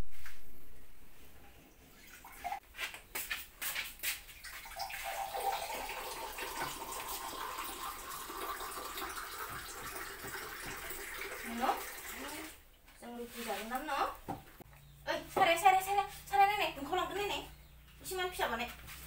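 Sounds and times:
running water: 1.9s - 2.6s, 3.9s - 12.6s.

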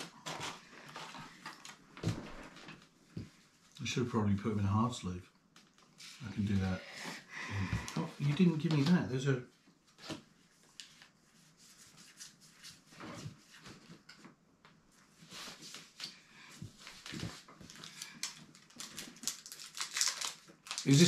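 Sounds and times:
trading cards rustling and clicking: 17.0s - 21.0s.

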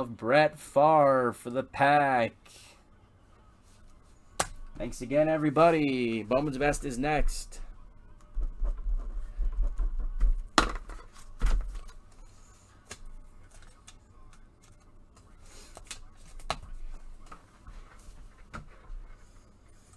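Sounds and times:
objects knocking on a desk: 8.4s - 11.8s.

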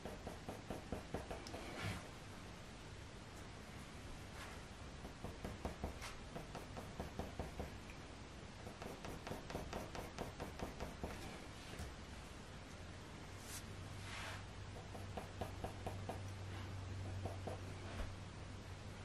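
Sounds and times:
pencil scratching on paper: 0.0s - 1.8s, 8.7s - 11.2s, 17.1s - 17.7s.

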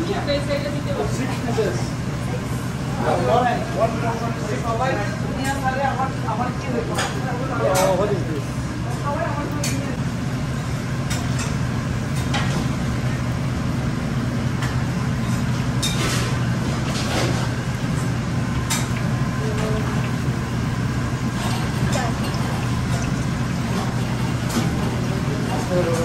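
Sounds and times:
food sizzling in hot oil: 13.6s - 25.9s.

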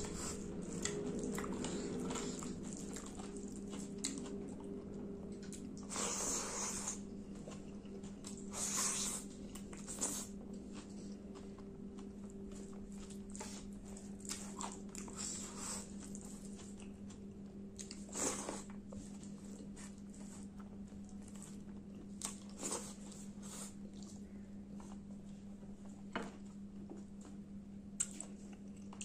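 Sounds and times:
chewing smacks and clicks: 0.0s - 5.9s, 28.0s - 29.0s
steady low hum: 0.0s - 29.0s.

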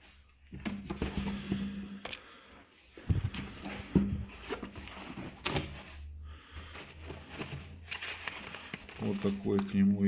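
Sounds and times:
cardboard rustling: 3.0s - 9.9s
plastic-wrapped papers rustling: 3.1s - 10.0s.

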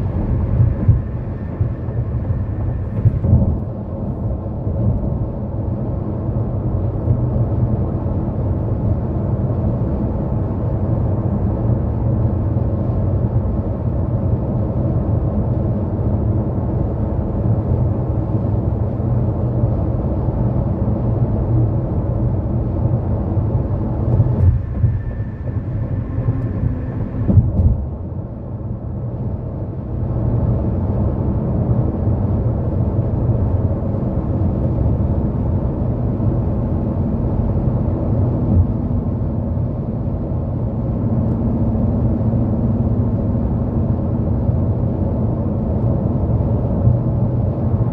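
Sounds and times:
tyre and road noise: 23.3s - 29.6s.

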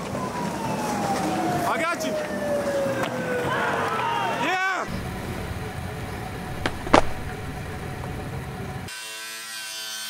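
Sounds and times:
low steady rumble: 4.9s - 8.9s
sharp knocks: 6.5s - 7.6s.

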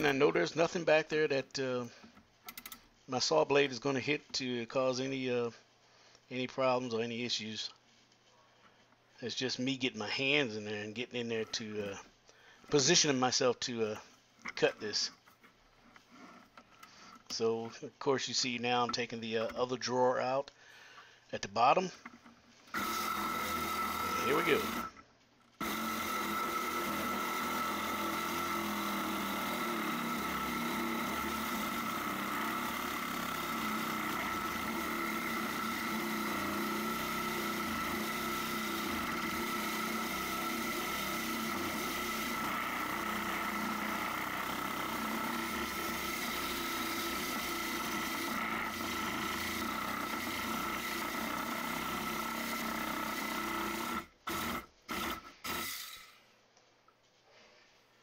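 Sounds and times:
reciprocating saw cutting wood: 22.7s - 25.0s, 25.6s - 56.0s.

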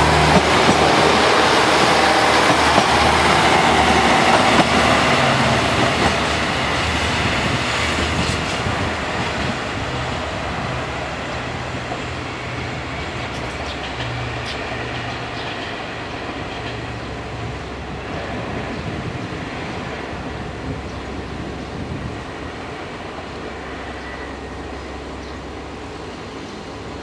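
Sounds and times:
train engine hum: 0.0s - 27.0s
wheels rumbling on track: 0.0s - 27.0s.

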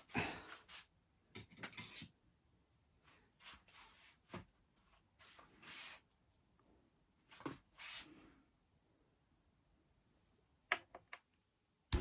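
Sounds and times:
handling noises of parts and tools: 1.3s - 2.2s.

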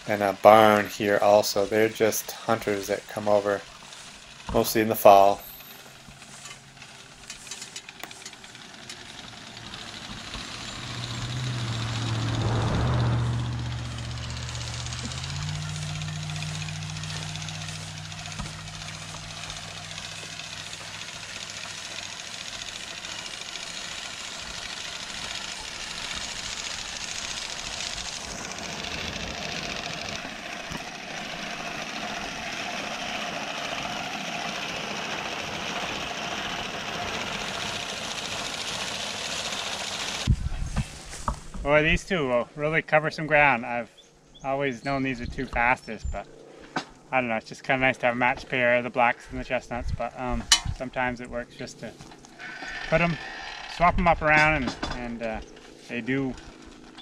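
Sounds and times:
hay mower cutter bar clatter: 0.0s - 11.9s, 14.2s - 40.3s, 50.4s - 50.9s, 51.8s - 57.0s
vehicle engine passing by: 0.0s - 40.3s
steady engine drone: 0.0s - 57.0s.

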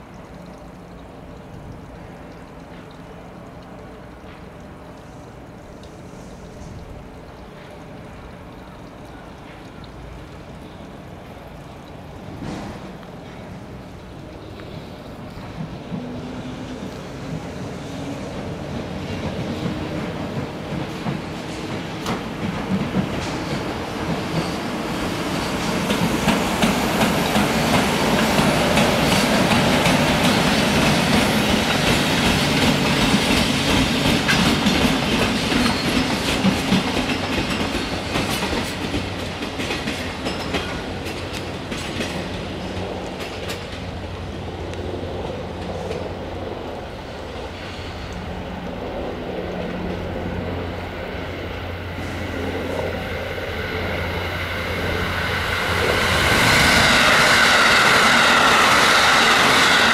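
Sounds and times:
locomotive passing: 0.0s - 59.9s
wheels clicking over rail joints: 18.3s - 51.2s.

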